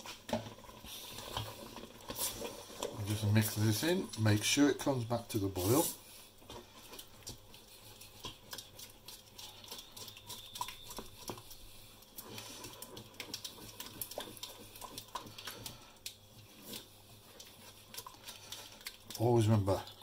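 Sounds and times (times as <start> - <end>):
wooden spoon scraping a saucepan: 0.0 - 18.8.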